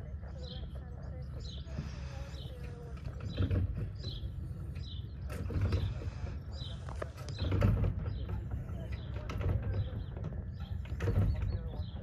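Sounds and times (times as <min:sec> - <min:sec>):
engine turning over with creaks: 0:01.2 - 0:12.0.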